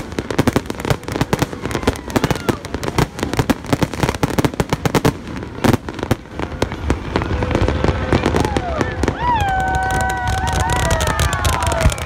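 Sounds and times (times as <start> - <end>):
fireworks bangs: 0.0 - 12.0.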